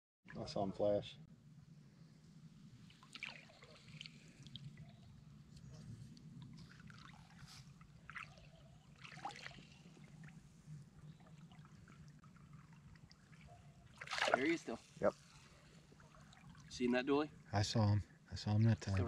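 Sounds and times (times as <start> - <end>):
water trickling and splashing: 2.8 - 17.7, 18.6 - 19.0.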